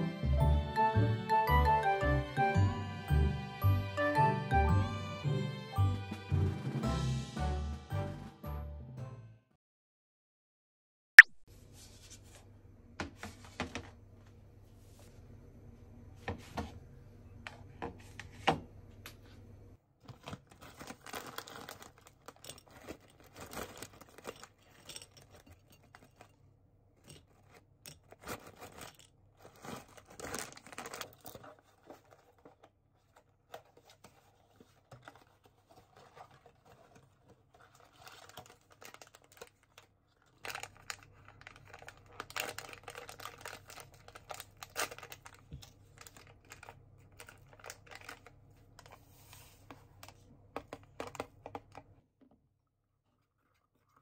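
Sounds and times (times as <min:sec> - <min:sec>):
snack bag rustling: 0:20.0 - 0:26.4, 0:27.0 - 0:49.0
stick pack torn open: 0:40.4 - 0:45.4.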